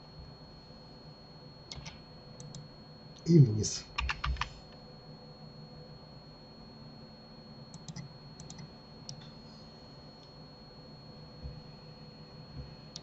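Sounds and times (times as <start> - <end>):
faint hum with high whine: 0.0 - 13.0
keyboard and mouse clicks: 1.7 - 2.6, 7.7 - 9.3.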